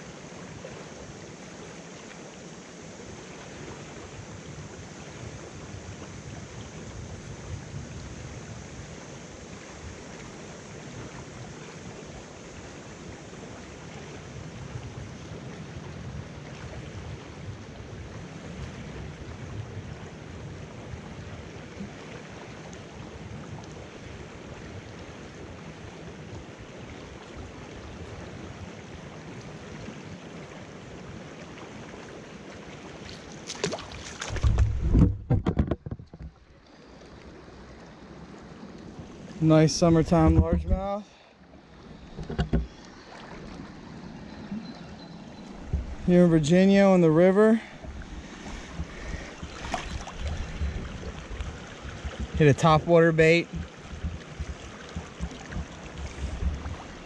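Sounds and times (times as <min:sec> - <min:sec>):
river water rushing over rocks: 0:27.6 - 0:35.0, 0:36.4 - 0:57.0
camera handling bumps and knocks: 0:34.4 - 0:36.4, 0:42.2 - 0:42.7.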